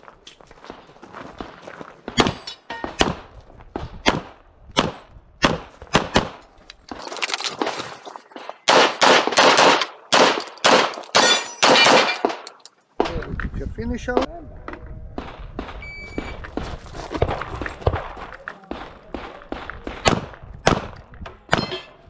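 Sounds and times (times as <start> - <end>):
pistol shots: 8.6 - 12.4, 18.7 - 20.9.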